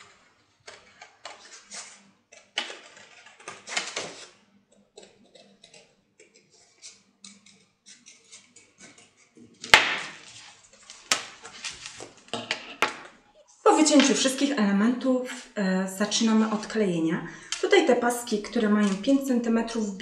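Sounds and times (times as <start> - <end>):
scissors cutting paper: 0.0 - 12.1, 17.5 - 19.7.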